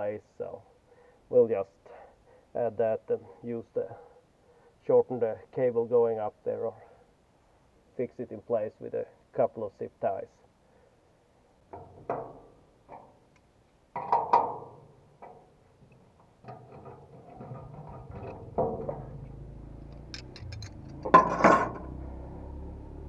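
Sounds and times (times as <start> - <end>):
spanners clinking on metal: 16.5 - 21.8.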